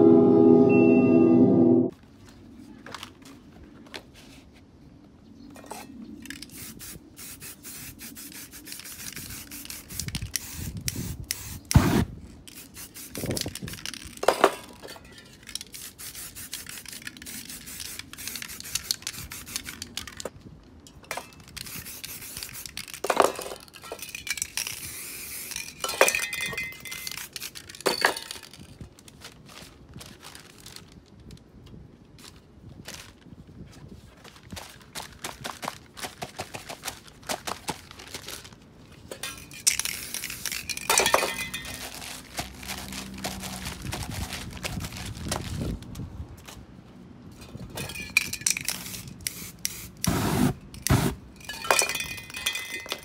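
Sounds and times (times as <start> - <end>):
spray paint cans hissing: 6.2 - 14.4, 15.3 - 20.3, 21.2 - 28.6, 39.2 - 45.1, 47.9 - 53.0
paper rubbing and scraping: 41.8 - 45.8.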